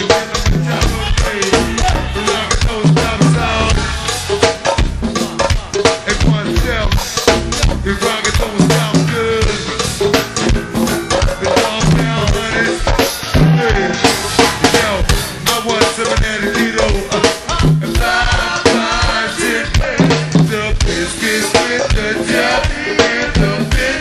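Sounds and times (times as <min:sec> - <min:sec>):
live band playing: 0:00.0 - 0:24.0
bass drum and rimshot hits: 0:00.4 - 0:19.2.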